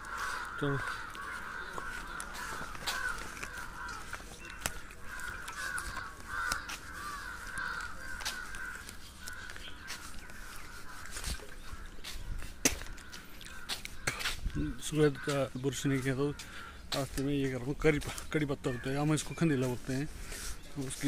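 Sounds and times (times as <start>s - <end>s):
sharp clicks and crunches: 0.0s - 14.6s
birds chattering: 0.0s - 21.0s.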